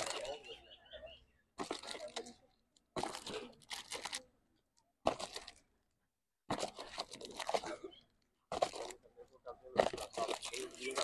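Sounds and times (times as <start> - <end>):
indistinct voices talking: 0.0 - 2.7.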